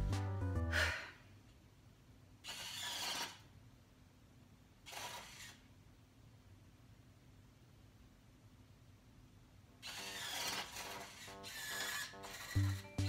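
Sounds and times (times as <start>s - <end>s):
small electric motors whirring: 2.5s - 3.4s, 4.9s - 5.6s, 9.8s - 13.0s.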